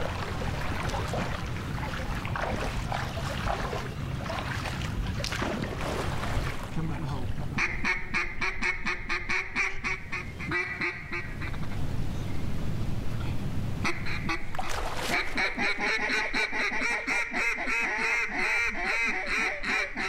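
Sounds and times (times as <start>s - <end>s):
duck calls quacking: 7.6s - 11.8s, 13.8s - 14.5s, 15.1s - 20.0s.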